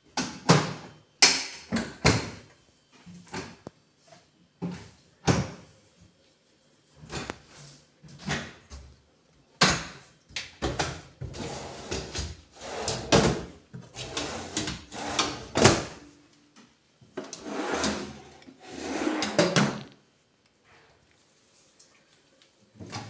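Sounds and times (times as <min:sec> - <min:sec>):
drawer sliding on runners: 0:11.3 - 0:15.9, 0:17.3 - 0:19.9.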